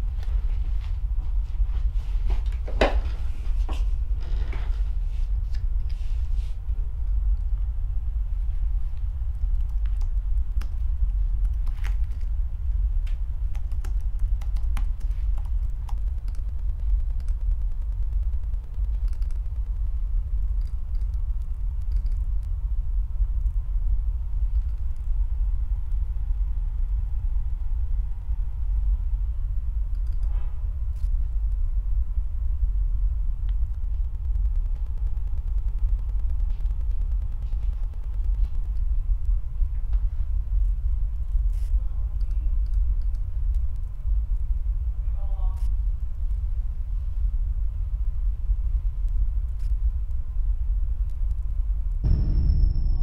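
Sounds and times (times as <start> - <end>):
deep rumble: 0.0 - 53.0
keyboard and mouse clicks: 9.3 - 12.3, 13.1 - 22.5, 24.5 - 25.1, 29.9 - 30.3.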